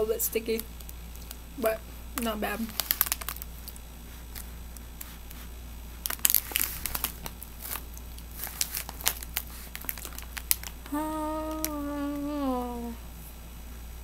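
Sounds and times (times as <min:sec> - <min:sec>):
plastic bag crinkling: 0:02.2 - 0:10.9.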